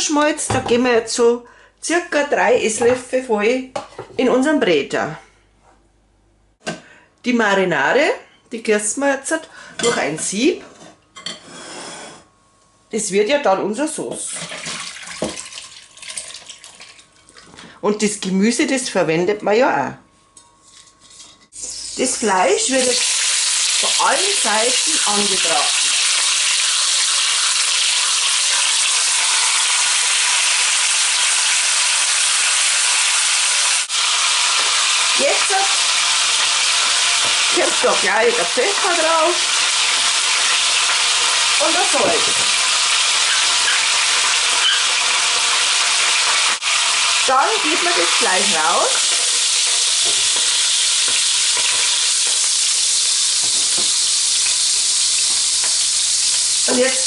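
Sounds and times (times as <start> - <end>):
meat sizzling in hot fat: 21.5 - 57.0.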